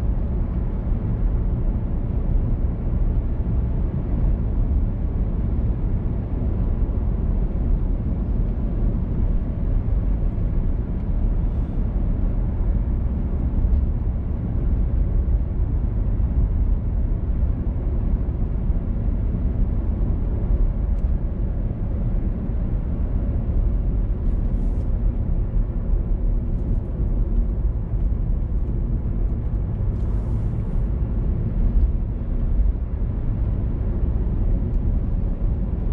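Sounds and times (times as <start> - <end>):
car driving on road: 0.0 - 35.9.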